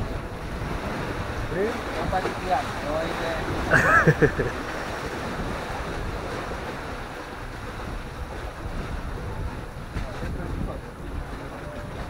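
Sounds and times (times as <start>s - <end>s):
river waves washing: 0.0s - 12.0s
wind buffeting microphone: 0.0s - 12.0s.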